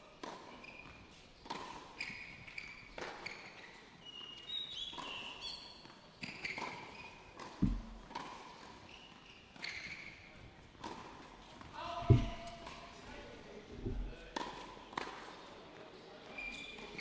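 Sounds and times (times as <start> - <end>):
ball bouncing on hard court: 6.2 - 8.6, 12.0 - 12.8, 13.8 - 15.1
tennis ball struck by rackets: 7.4 - 8.6, 12.0 - 12.8
heavy thump: 7.6 - 8.1, 12.0 - 12.6, 13.8 - 14.3.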